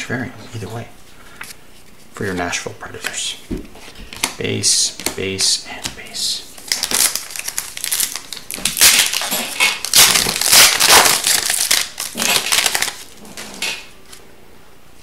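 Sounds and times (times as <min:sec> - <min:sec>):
foil wrapper tearing and crinkling: 0:06.6 - 0:13.9.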